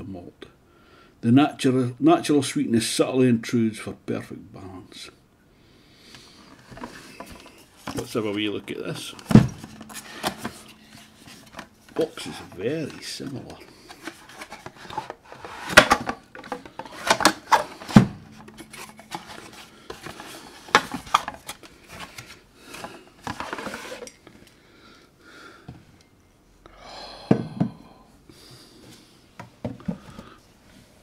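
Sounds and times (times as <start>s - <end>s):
box clicks and knocks: 9.1s - 22.2s
cardboard rubbing and scraping: 13.9s - 16.0s.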